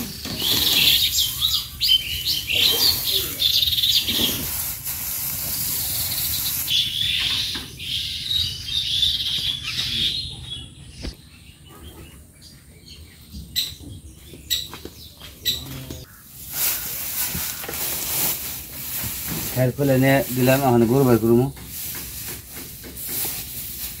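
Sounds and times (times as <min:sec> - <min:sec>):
birds chirping: 0:00.0 - 0:22.5
dry straw rustling and crackling: 0:00.2 - 0:06.8, 0:16.0 - 0:24.0.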